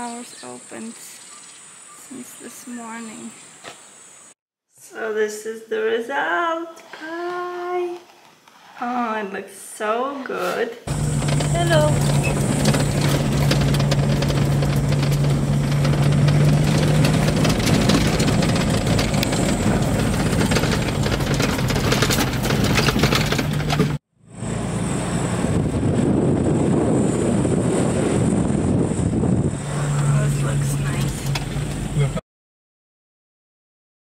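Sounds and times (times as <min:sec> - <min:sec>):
road and body noise: 0:10.3 - 0:32.2
car engine running: 0:10.9 - 0:32.2.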